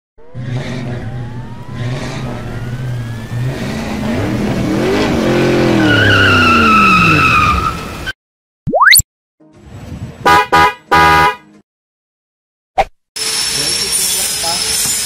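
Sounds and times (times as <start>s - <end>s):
car engine revving: 0.2s - 7.3s.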